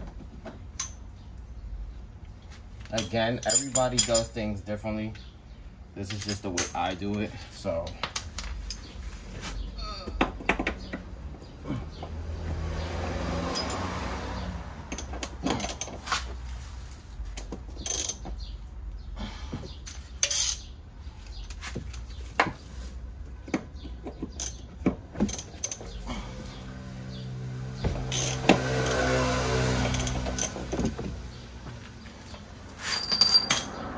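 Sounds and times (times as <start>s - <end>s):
metal hand tools clinking: 3.0s - 4.5s, 32.8s - 33.8s.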